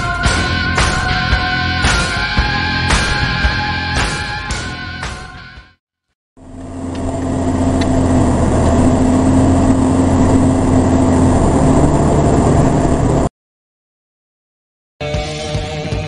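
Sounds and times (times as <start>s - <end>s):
car engine and road noise: 6.4s - 13.3s.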